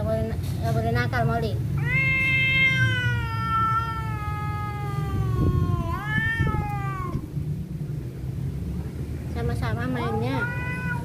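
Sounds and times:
cat yowling: 1.8s - 7.4s, 9.9s - 11.0s.

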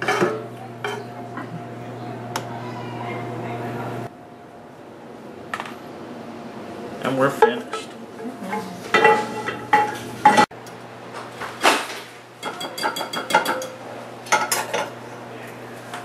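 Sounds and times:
metal utensils clinking on pans: 0.0s - 1.1s, 7.3s - 10.5s, 12.4s - 15.0s.

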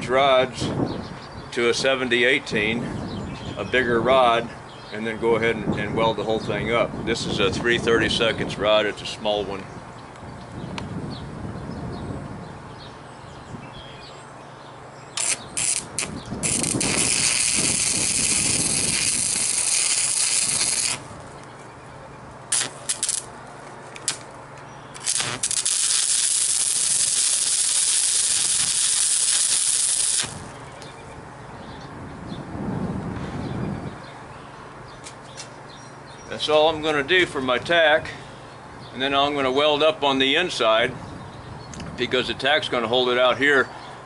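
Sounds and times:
welding arc hissing: 15.2s - 21.1s, 22.5s - 23.3s, 25.0s - 30.6s.

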